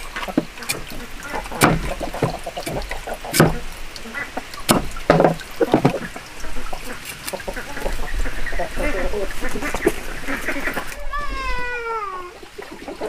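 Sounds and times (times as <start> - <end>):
ducks quacking: 0.0 - 4.8, 5.6 - 11.6
cleaver chopping on wooden board: 0.7 - 3.6, 4.7 - 6.0.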